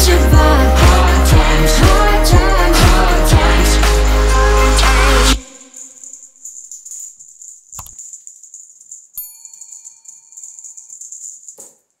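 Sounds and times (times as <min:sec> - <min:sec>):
high jingling rattle: 0:05.4 - 0:12.0
sharp click: 0:07.8 - 0:08.0
small bell ding: 0:09.2 - 0:11.7.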